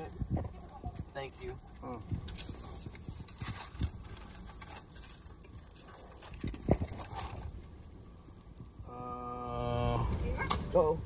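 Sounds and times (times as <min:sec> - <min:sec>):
paper rustling: 0:00.0 - 0:08.7.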